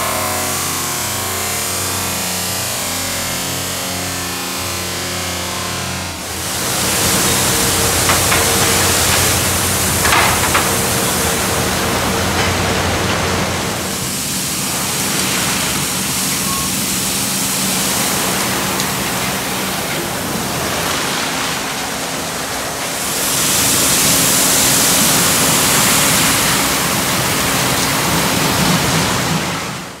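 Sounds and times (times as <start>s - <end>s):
low machine hum: 0.0s - 29.3s.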